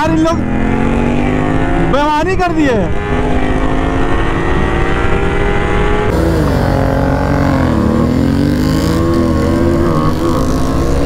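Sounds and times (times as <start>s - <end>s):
motorcycle engine revving high: 0.0s - 11.0s.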